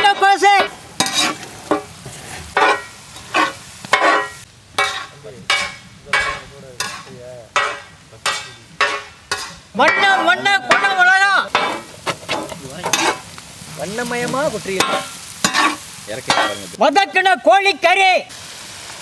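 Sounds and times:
person speaking: 0.0 - 0.7, 9.7 - 15.1
wooden spatula scraping iron pan: 0.0 - 13.3, 14.0 - 16.8
faint sizzle of stir-frying: 0.0 - 19.0.

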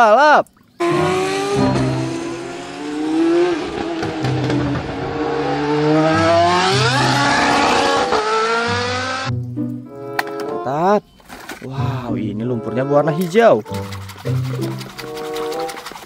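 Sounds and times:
race car engine revving: 0.8 - 9.3.

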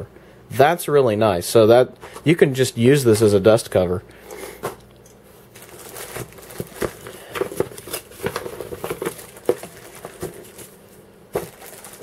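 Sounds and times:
plastic packaging crinkling: 5.4 - 12.0.

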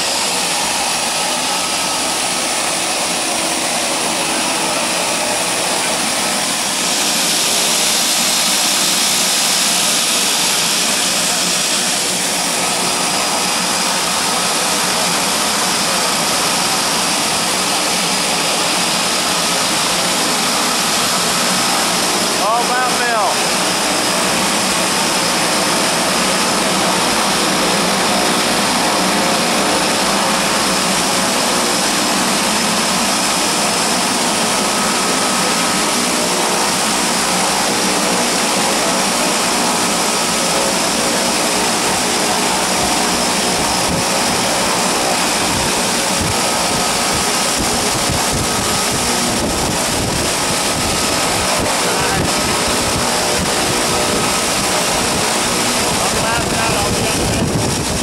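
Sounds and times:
engine whine: 0.0 - 58.0
turboprop engines running: 0.0 - 58.0
wind buffeting microphone: 45.4 - 58.0.

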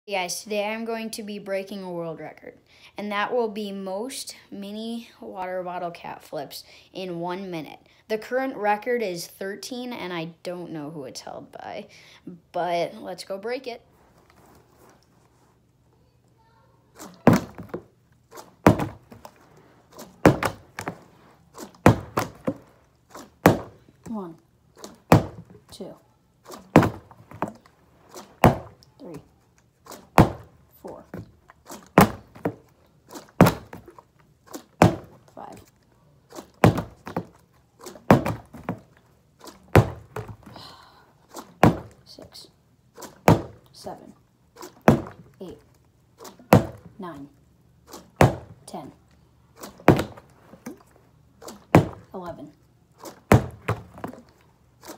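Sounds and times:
plastic bottle landing with thunks: 17.0 - 23.8, 24.8 - 25.6, 26.5 - 28.8, 29.9 - 35.3, 36.3 - 40.6, 41.3 - 42.0, 43.0 - 43.6, 44.6 - 45.3, 46.2 - 46.9, 47.9 - 48.6, 49.6 - 50.7, 51.4 - 52.1, 53.0 - 54.9.

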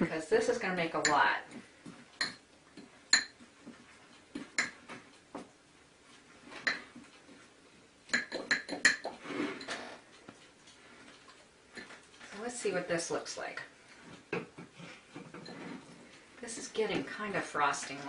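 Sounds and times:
spoon clinking on ceramic bowl: 3.1 - 3.4.

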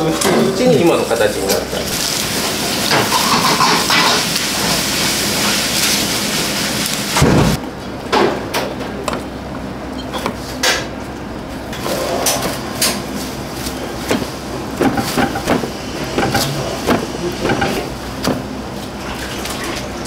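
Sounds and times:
breadcrumbs rustling and crunching: 1.9 - 3.4
steady low hum: 6.8 - 20.0.

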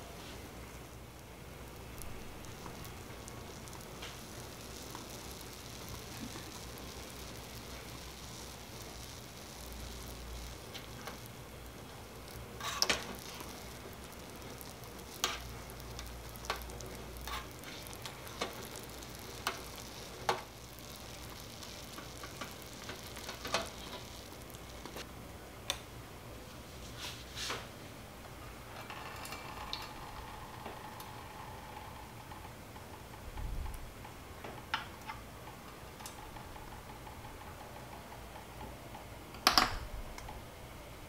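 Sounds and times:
simmering water hiss: 0.0 - 25.1.

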